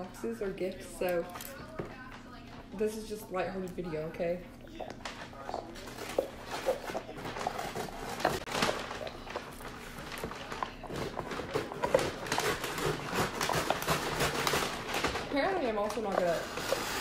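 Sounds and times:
wrapping paper rustling: 0:05.0 - 0:17.0.

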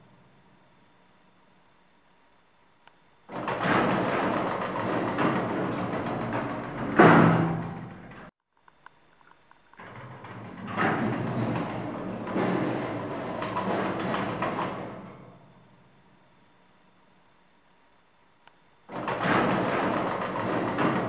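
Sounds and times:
elevator doors closing with a bang: 0:03.3 - 0:08.3, 0:09.8 - 0:15.9, 0:18.9 - 0:21.0
elevator doors sliding open: 0:03.3 - 0:08.3, 0:09.8 - 0:15.8, 0:18.9 - 0:21.0.

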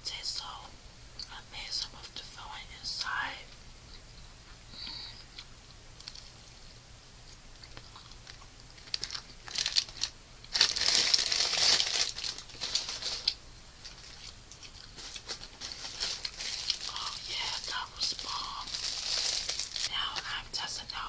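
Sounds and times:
food wrapper crinkling: 0:07.6 - 0:20.3.

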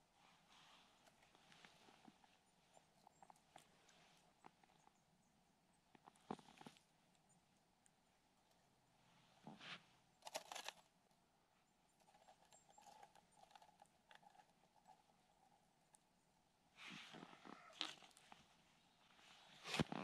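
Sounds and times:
rustle: 0:16.7 - 0:20.0.

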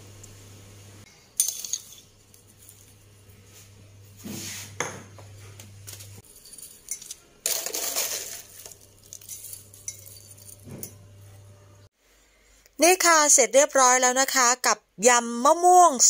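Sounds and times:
metal spoon scraping glass jar: 0:06.3 - 0:11.0.

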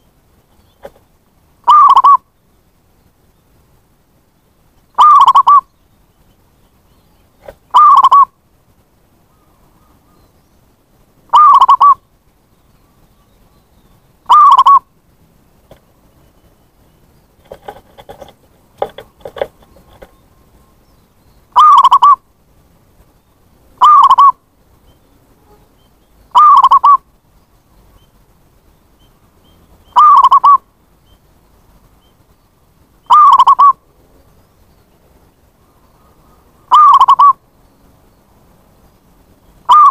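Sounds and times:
dove cooing: 0:01.6 - 0:02.2, 0:05.0 - 0:05.7, 0:07.4 - 0:08.3, 0:11.3 - 0:12.0, 0:14.3 - 0:14.8, 0:17.4 - 0:20.2, 0:21.6 - 0:22.2, 0:23.8 - 0:24.4, 0:26.3 - 0:27.0, 0:29.9 - 0:30.6, 0:33.1 - 0:33.8, 0:36.7 - 0:37.4, 0:39.7 - 0:39.9
faint clicks: 0:17.4 - 0:20.2.

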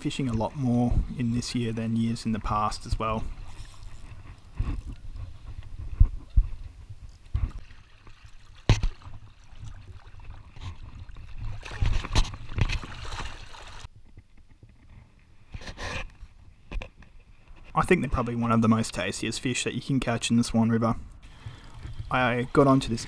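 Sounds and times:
water sloshing and splashing: 0:01.2 - 0:13.9.

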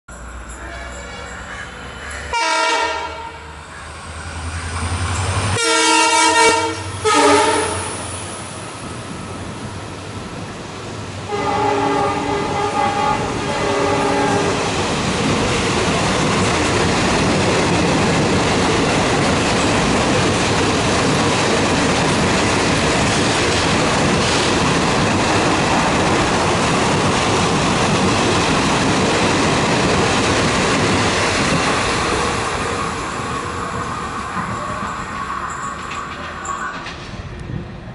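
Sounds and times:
train wheels rushing on track: 0:00.2 - 0:37.9
locomotive multi-tone horn: 0:00.5 - 0:03.6, 0:05.5 - 0:08.0, 0:11.3 - 0:14.8.

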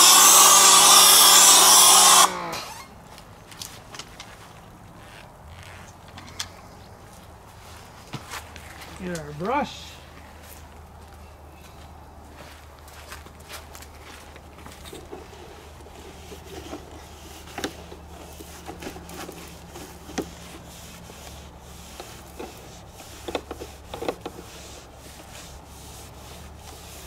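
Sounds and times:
scrub brush scraping siding: 0:00.0 - 0:02.8, 0:13.0 - 0:27.0.

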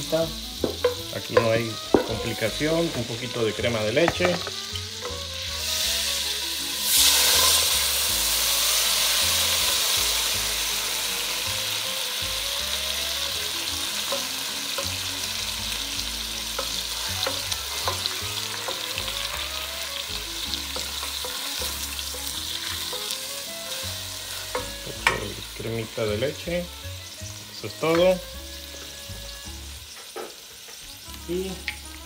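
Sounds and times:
butter and oil sizzling in a pot: 0:00.0 - 0:32.0.

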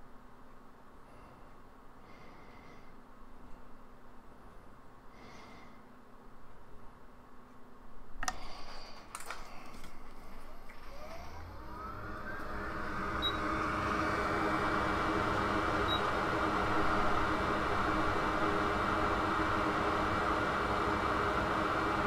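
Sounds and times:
hot air station fan whine: 0:07.8 - 0:22.0
steady rush of air: 0:08.0 - 0:22.0.

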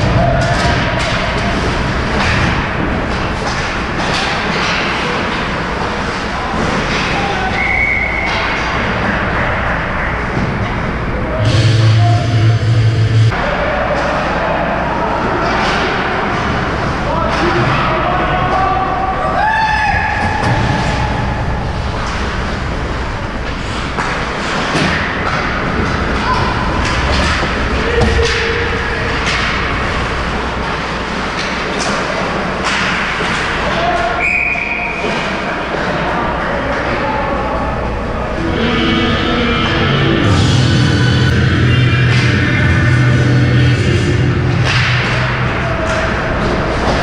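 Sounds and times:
clicks of sticks and puck: 0:02.2 - 0:09.2, 0:23.4 - 0:29.8, 0:30.6 - 0:34.4, 0:44.6 - 0:47.0.

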